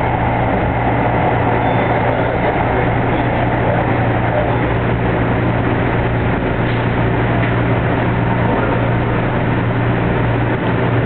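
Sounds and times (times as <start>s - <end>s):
train low hum: 0.0s - 11.0s
train running noise: 0.0s - 11.0s.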